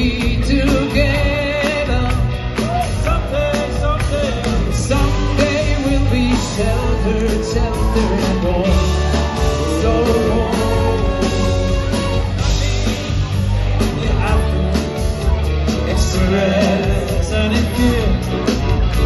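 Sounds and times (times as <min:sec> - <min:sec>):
band with drums and bass: 0:00.0 - 0:19.0
men singing: 0:03.1 - 0:11.9, 0:15.8 - 0:18.3.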